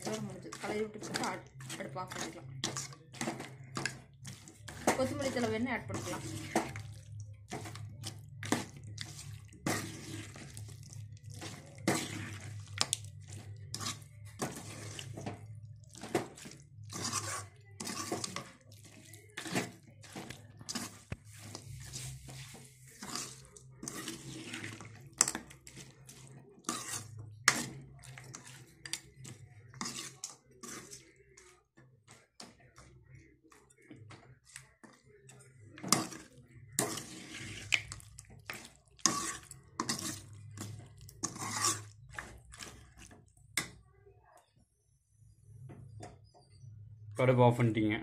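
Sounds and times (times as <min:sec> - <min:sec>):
spoon scraping a metal pan: 0:00.0 - 0:31.4, 0:35.7 - 0:43.7.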